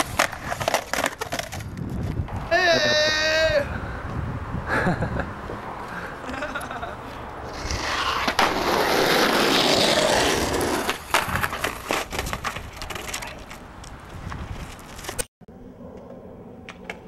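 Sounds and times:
skateboard clacking on ground: 0.0 - 2.4, 7.5 - 14.0
skateboard wheels rolling on asphalt: 0.0 - 15.3.

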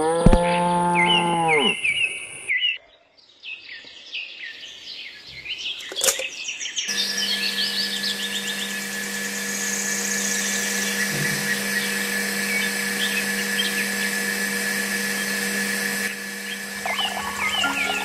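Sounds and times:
birds chirping: 0.0 - 18.0
water pump motor humming: 6.9 - 18.0
music: 16.8 - 18.0.

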